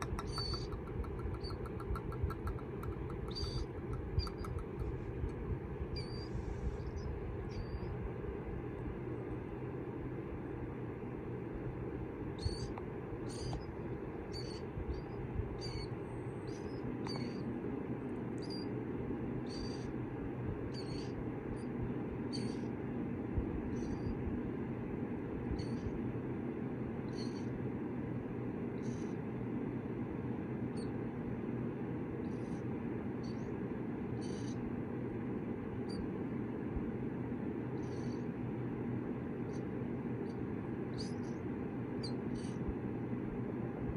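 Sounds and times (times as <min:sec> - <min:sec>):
chicks peeping: 0:00.0 - 0:08.0
steady low hum: 0:00.0 - 0:43.9.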